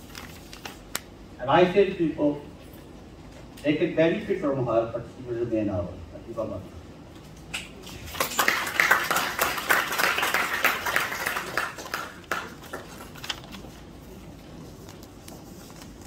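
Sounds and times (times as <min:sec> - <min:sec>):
audience applauding: 0:08.1 - 0:13.2.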